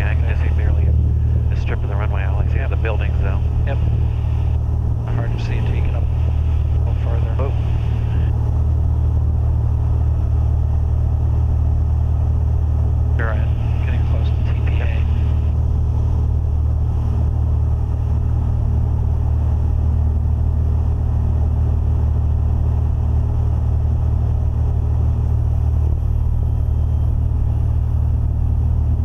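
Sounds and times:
aircraft engine and propeller drone: 0:00.0 - 0:29.0.

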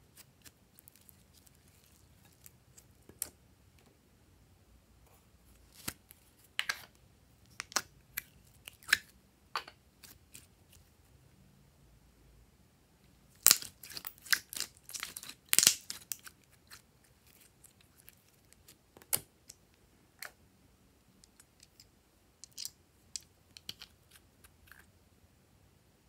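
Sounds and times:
slime crackling and popping: 0:13.4 - 0:19.2.

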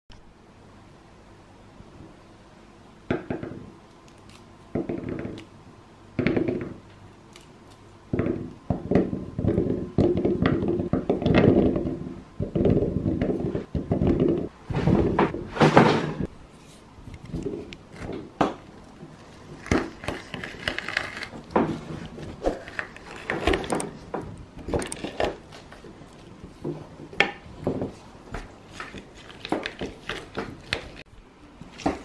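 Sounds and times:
grapes rolling and rattling: 0:17.3 - 0:32.0.

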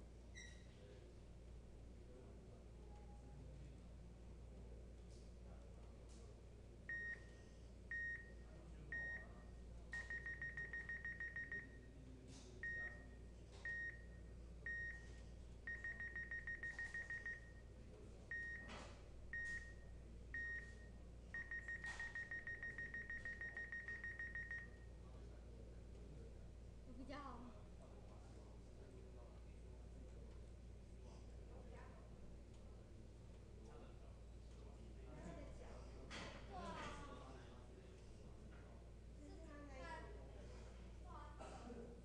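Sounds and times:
electronic beeps: 0:10.0 - 0:11.8, 0:15.7 - 0:17.6, 0:20.4 - 0:24.8.

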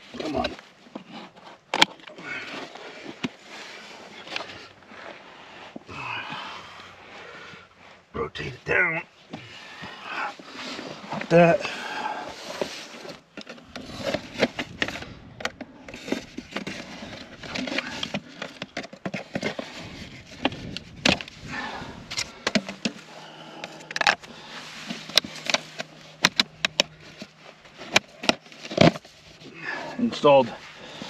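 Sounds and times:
soil rustling: 0:00.0 - 0:31.0
plastic clicks and scrapes: 0:12.4 - 0:21.5, 0:22.1 - 0:23.0, 0:23.6 - 0:29.5.

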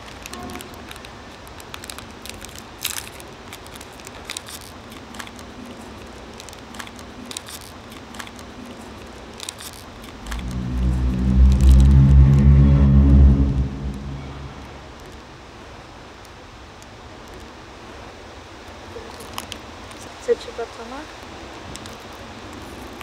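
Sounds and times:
wrapper crinkling and tearing: 0:00.0 - 0:05.5, 0:06.3 - 0:08.5
loud low droning hum: 0:10.1 - 0:15.6.

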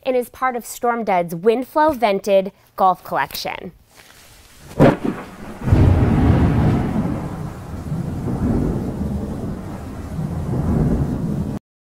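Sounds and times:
rain hissing: 0:04.0 - 0:11.6
rolling thunder: 0:04.6 - 0:11.6.

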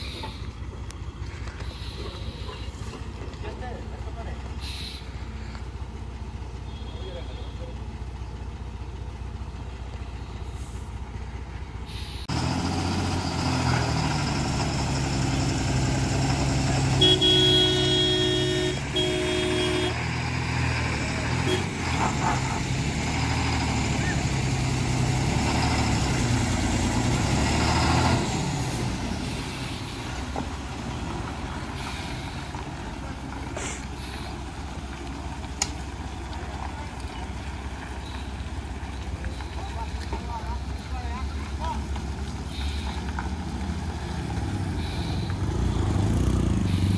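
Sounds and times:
lorry diesel engine running: 0:00.0 - 0:46.9
vehicle horn toots: 0:04.6 - 0:05.1, 0:06.6 - 0:07.8, 0:16.9 - 0:20.0, 0:21.4 - 0:21.7.

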